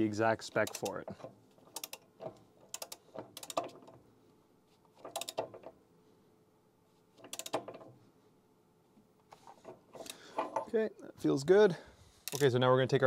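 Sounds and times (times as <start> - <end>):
socket ratchet clicking: 0.6 - 1.0, 1.7 - 3.9, 5.0 - 5.7, 7.2 - 7.7, 12.3 - 12.5.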